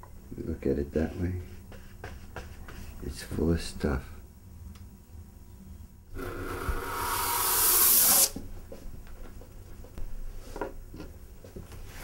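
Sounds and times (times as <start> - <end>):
aerosol spray hissing: 6.6 - 8.4.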